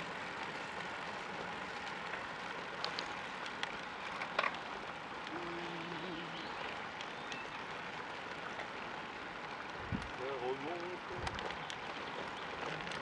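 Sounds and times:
bike tyres rolling on tarmac: 0.0s - 13.0s
wind rushing on the microphone: 9.8s - 10.2s, 11.0s - 11.6s.

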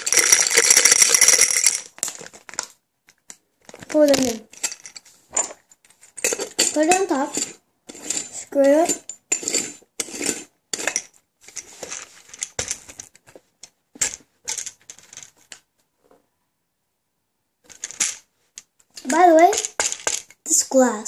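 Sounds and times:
lid rattling and scraping: 0.0s - 2.6s, 3.7s - 13.1s.

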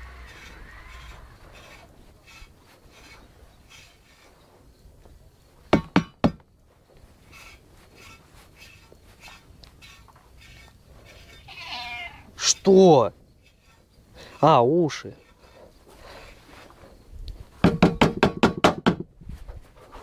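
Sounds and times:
comb raking through fur: 0.0s - 4.7s, 6.9s - 17.0s.

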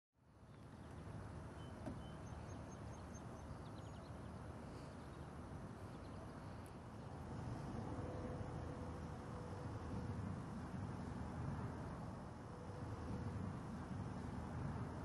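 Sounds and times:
faint steady hum: 0.2s - 15.0s
faint high bird chirps: 0.5s - 5.3s
steady low rumble: 0.6s - 15.0s.

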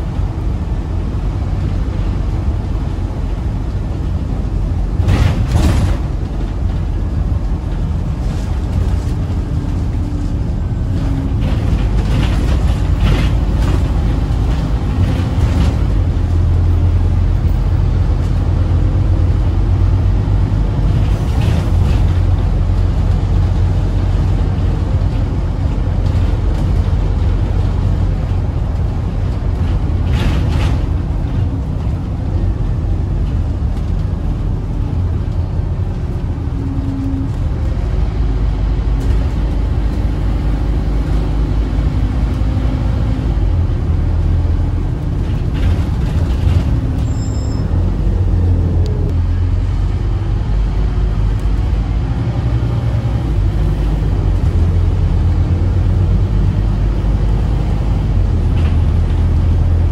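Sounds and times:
bus engine and road drone: 0.0s - 59.9s.

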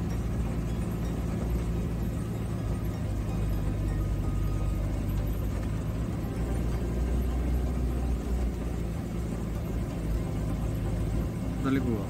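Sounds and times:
engine droning: 0.0s - 12.0s
road noise: 0.0s - 12.0s.

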